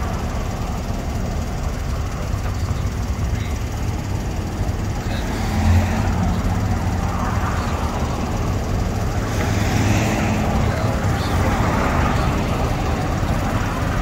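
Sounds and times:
road traffic rumble: 0.0 - 14.0
vehicle passing: 4.0 - 14.0.

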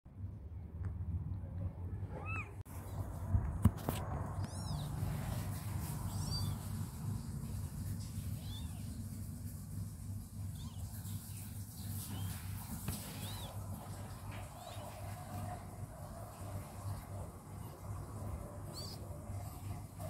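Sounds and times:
kittens mewing: 2.0 - 2.6, 4.3 - 7.0, 8.2 - 9.0, 12.0 - 15.7, 16.5 - 20.0.

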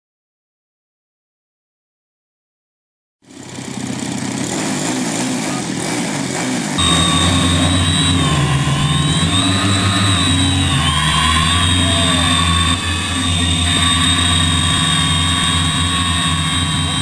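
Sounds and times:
model plane engine running: 3.3 - 17.0
wavering high whine: 6.6 - 17.0.

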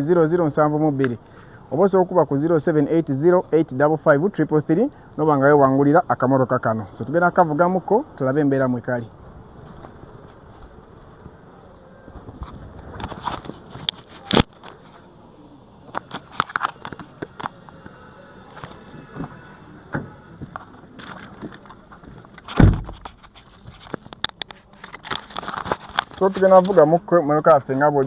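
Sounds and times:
footsteps: 15.8 - 26.9
car door shutting thump: 22.5 - 23.0.

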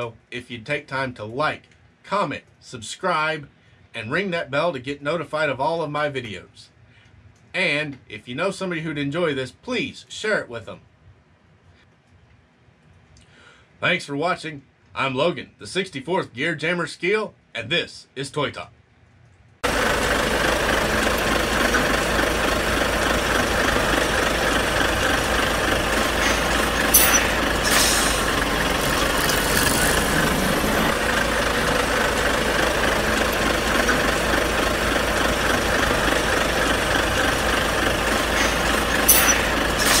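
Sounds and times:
truck engine idling: 19.6 - 40.0
short sharp hisses: 26.2 - 30.2, 38.4 - 40.0.

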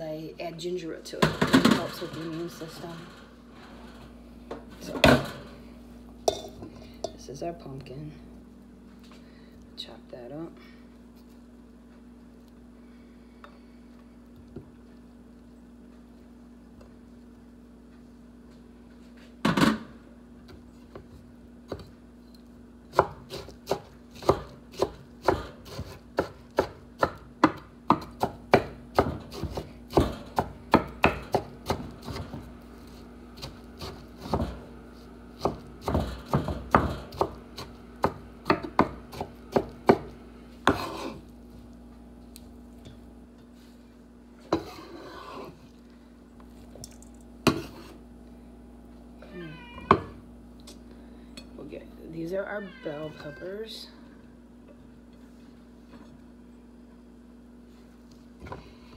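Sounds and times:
knife chopping on wooden board: 22.9 - 32.4, 33.4 - 34.6, 35.4 - 41.2
knife scraping board: 40.6 - 41.2, 44.5 - 45.6, 47.5 - 48.0.

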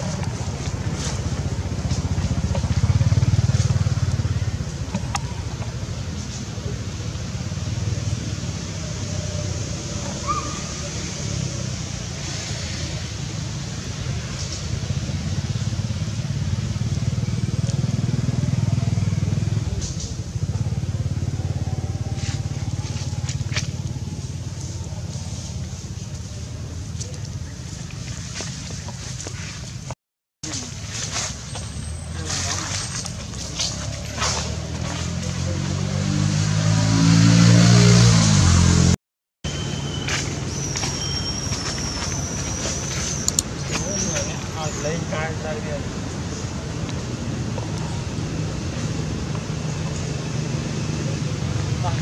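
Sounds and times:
vehicle engine running: 0.0 - 9.0, 13.3 - 29.4
vehicle engine rumble: 0.0 - 52.0.

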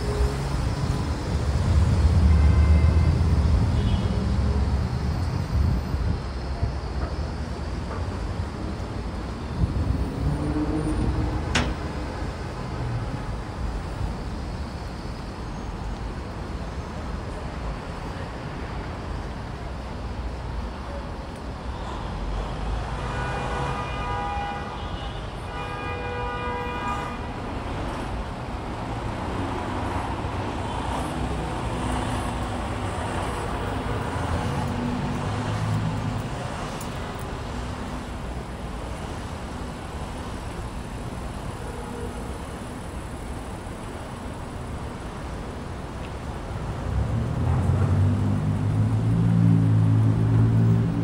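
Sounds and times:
passing cars: 0.0 - 20.7, 21.3 - 51.0
car horn: 3.8 - 4.2, 23.0 - 27.4.

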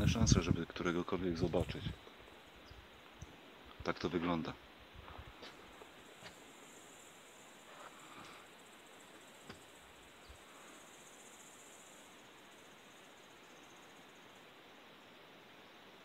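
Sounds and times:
high-pitched insect chirring: 5.6 - 14.5.

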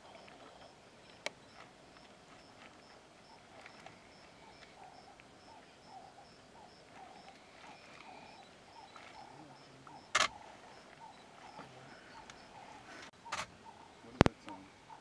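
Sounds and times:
faint regular chirping: 0.0 - 15.0
camera shutter click: 10.2 - 10.4.

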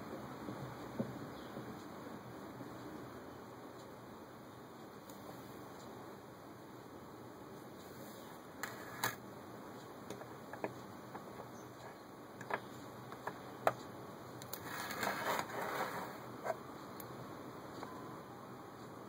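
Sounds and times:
can opener scraping rim: 14.6 - 16.2.

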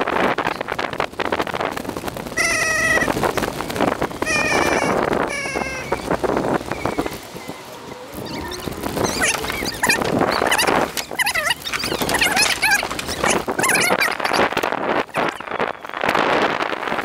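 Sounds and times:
wind buffeting and rattling: 0.0 - 17.0
squeaky high-pitched calls: 2.4 - 3.2, 4.2 - 14.5, 15.1 - 16.0.

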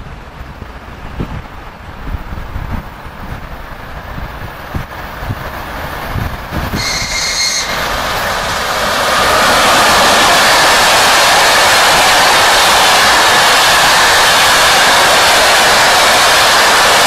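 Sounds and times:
train wheels rushing on rails: 0.0 - 17.0
wind thumps on microphone: 0.1 - 6.8.

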